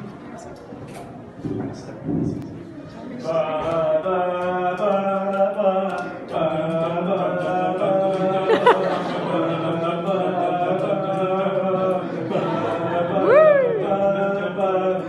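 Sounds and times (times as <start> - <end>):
voices chanting long notes: 7.8 - 15.0.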